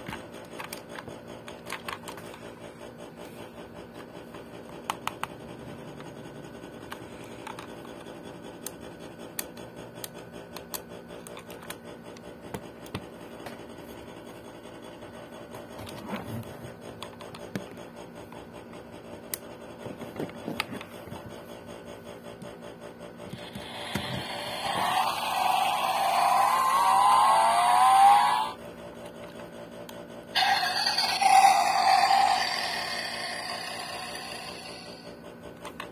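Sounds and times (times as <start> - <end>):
toy car clicks and scratches: 0.0 - 2.6, 6.8 - 13.0, 23.3 - 35.9
faint hum: 0.0 - 35.9.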